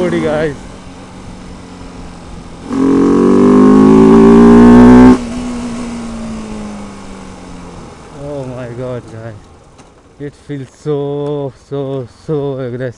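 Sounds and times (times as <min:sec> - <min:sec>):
motorcycle engine accelerating: 0:00.0 - 0:08.2.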